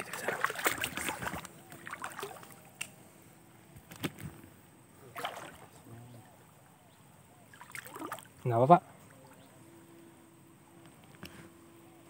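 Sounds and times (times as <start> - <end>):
splashy footsteps in shallow water: 0.0 - 2.9, 5.1 - 5.7.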